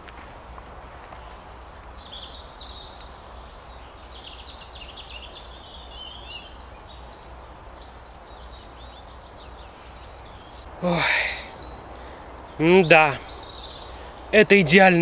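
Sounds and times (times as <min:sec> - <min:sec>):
steady background hiss: 0:00.0 - 0:15.0
songbirds chirping and trilling: 0:00.7 - 0:15.0.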